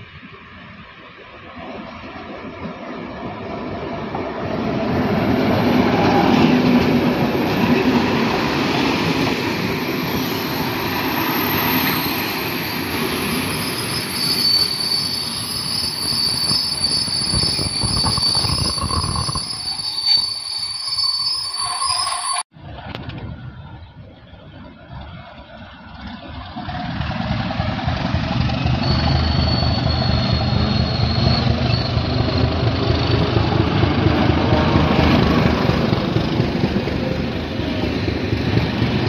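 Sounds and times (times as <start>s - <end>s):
diesel locomotive passing: 0.0s - 39.0s
high-pitched squeal: 8.4s - 22.5s, 28.4s - 33.1s.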